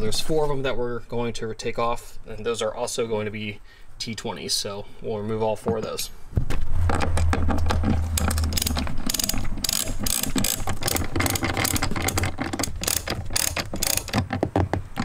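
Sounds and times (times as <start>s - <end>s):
low hum: 6.0s - 11.1s
hand ratchet clicking: 8.1s - 15.0s.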